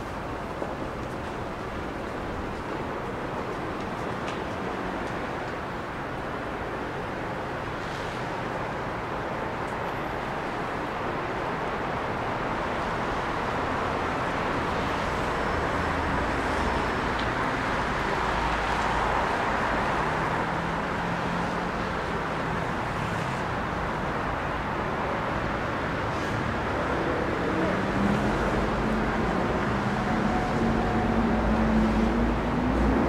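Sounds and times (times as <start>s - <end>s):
tyres hissing on wet road: 7.7s - 9.0s, 12.8s - 33.0s.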